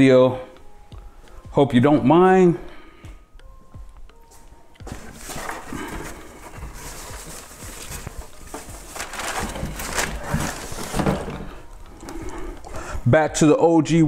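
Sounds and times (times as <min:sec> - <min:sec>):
plastic rubbing and scraping: 0:04.9 - 0:11.7.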